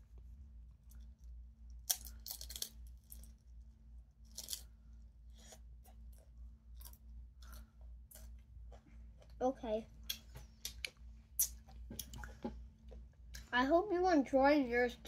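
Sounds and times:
faint steady hum: 0.0s - 15.0s
crunching chip bites: 0.9s - 3.5s, 4.2s - 4.7s.

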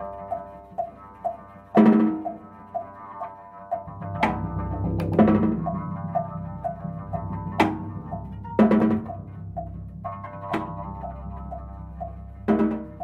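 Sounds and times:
low steady drone: 3.8s - 12.5s.

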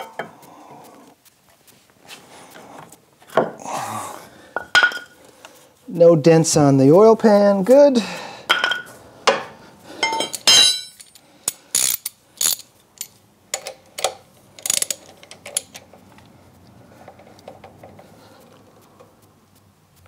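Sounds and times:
ringing metal clink: 10.0s - 13.7s
socket ratchet clicking: 11.1s - 16.0s.

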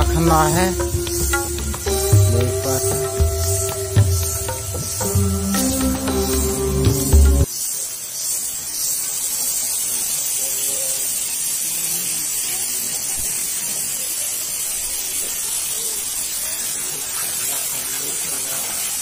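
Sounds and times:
waterfall rushing: 0.0s - 7.5s.

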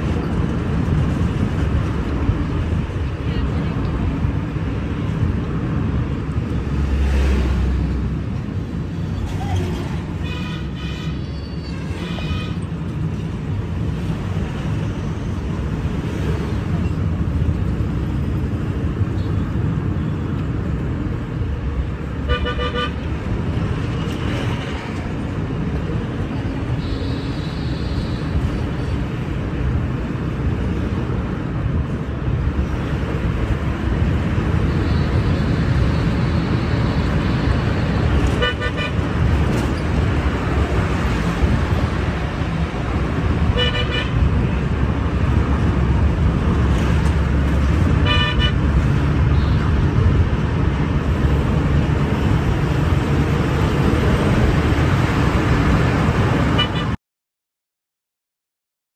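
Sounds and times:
vehicle engine and road rumble: 0.0s - 57.0s.

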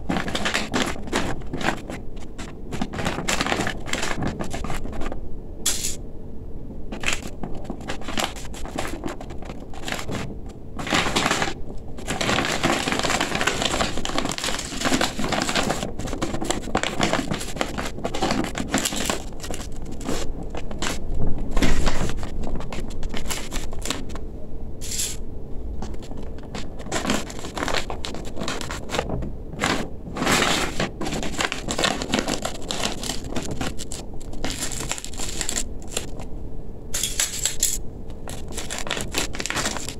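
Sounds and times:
stiff fabric crinkling and rustling: 0.0s - 5.2s, 6.9s - 24.2s, 25.8s - 36.3s, 37.0s - 39.9s.

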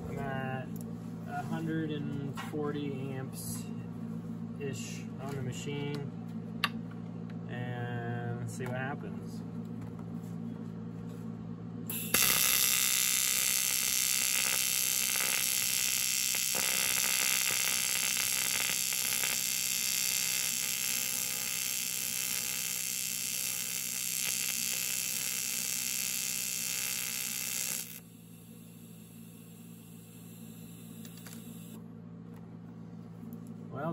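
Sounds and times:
welding arc buzzing and hissing: 11.9s - 31.8s.

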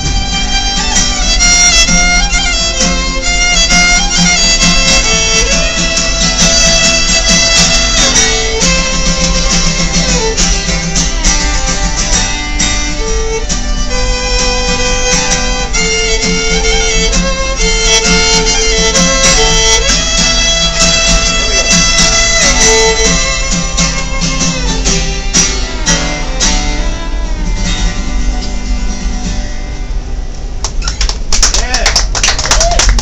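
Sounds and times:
fiddle playing a tune: 0.0s - 30.7s
guitar rhythm chords: 0.0s - 32.2s.

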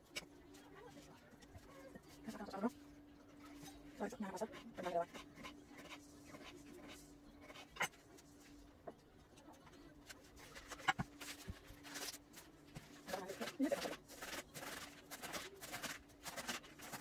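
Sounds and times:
faint steady hum: 0.0s - 17.0s
lettuce rustling: 10.3s - 17.0s.

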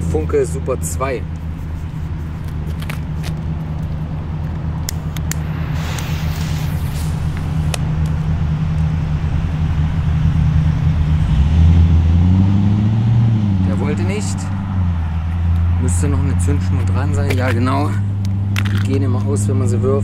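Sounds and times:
vehicle engine idling: 0.0s - 20.0s
firecracker fuse hissing: 5.0s - 8.4s.

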